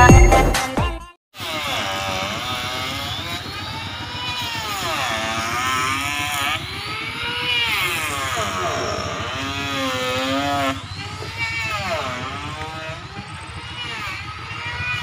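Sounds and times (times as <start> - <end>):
chainsaw cutting timber: 1.3 - 15.0.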